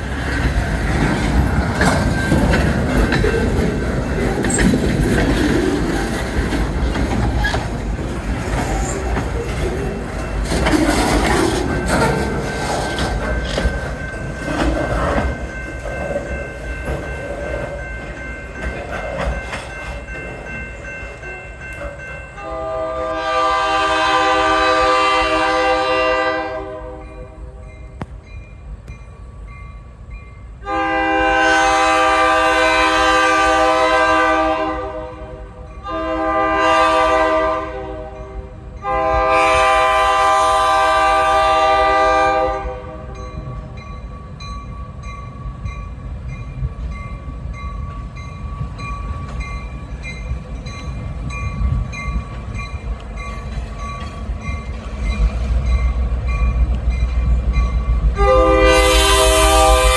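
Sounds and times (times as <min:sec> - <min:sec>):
crossing bell ringing: 0:00.0 - 0:25.0, 0:26.4 - 0:33.7, 0:35.2 - 0:40.9, 0:41.6 - 0:59.9
diesel locomotive rumble: 0:00.0 - 0:59.9
locomotive air horn blasts: 0:22.4 - 0:27.4, 0:30.6 - 0:43.2, 0:58.1 - 0:59.9.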